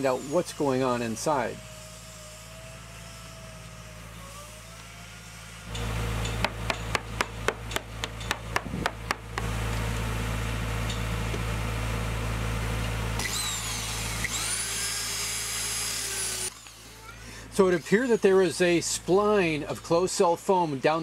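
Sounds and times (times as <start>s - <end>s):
electric drill whining: 0.0s - 9.5s, 13.2s - 18.8s
sharp knocks: 6.3s - 9.4s.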